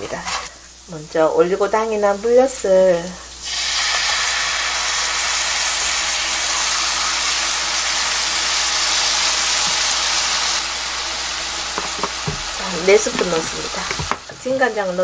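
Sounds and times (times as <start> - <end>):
syrup sizzling in frying pan: 3.2 - 15.0.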